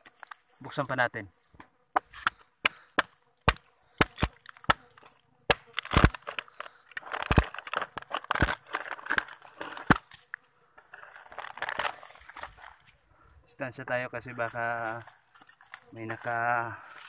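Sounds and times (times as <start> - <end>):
knife chopping into wood: 2.0 - 6.3
crumbling wood crunching: 2.7 - 12.9.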